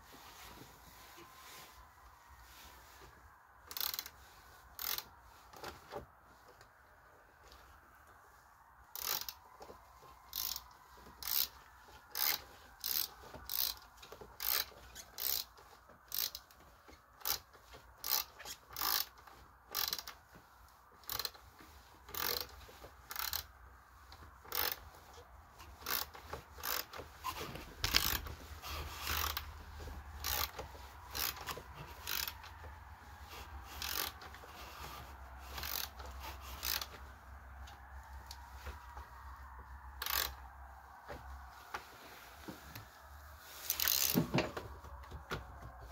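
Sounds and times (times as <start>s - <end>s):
socket ratchet clicking: 3.7s - 4.2s, 4.8s - 5.1s, 9.0s - 9.4s, 10.3s - 10.6s, 11.2s - 13.8s, 14.4s - 15.5s, 16.1s - 16.5s, 17.2s - 20.2s, 21.0s - 21.4s, 22.1s - 22.5s, 23.1s - 23.5s, 24.4s - 24.8s, 25.8s - 27.0s, 27.8s - 28.2s, 29.0s - 29.5s, 30.2s - 32.4s, 33.7s - 34.2s, 35.5s - 37.0s, 40.0s - 40.4s, 43.7s - 44.3s.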